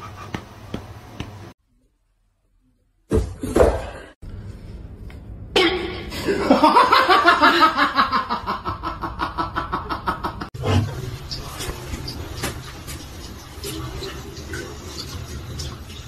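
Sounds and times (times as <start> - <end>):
person laughing hard: 6.2 - 10.5.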